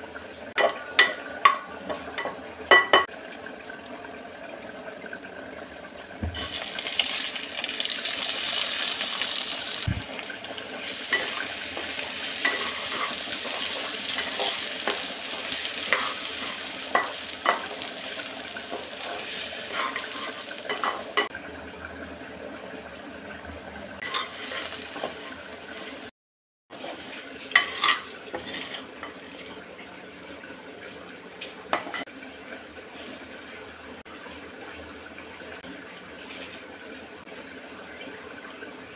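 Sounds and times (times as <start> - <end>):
rice sizzling in hot oil: 6.4 - 21.3, 24.0 - 26.1, 26.8 - 29.5
wooden spatula scraping pan: 10.9 - 17.7, 18.7 - 21.0, 24.0 - 26.1, 26.7 - 29.6.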